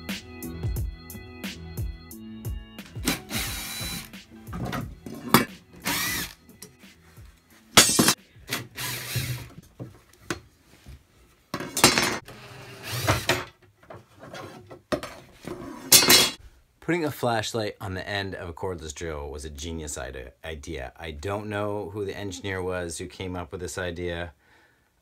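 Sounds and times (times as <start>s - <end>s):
cordless drill motor whine: 3.2s - 4.1s, 5.8s - 6.4s.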